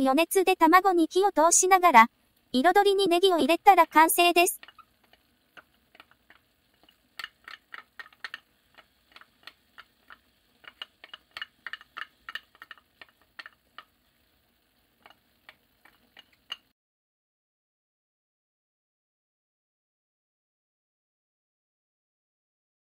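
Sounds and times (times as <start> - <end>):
spatula tapping a frying pan: 4.6 - 13.9, 15.0 - 16.7.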